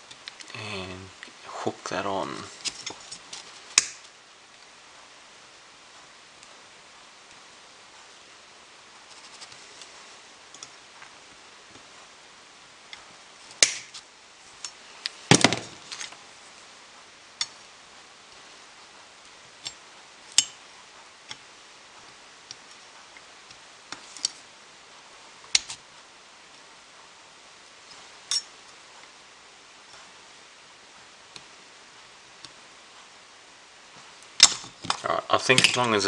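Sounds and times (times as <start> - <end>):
pliers clicking on metal terminals: 3.8 - 4.1, 34.4 - 36.0.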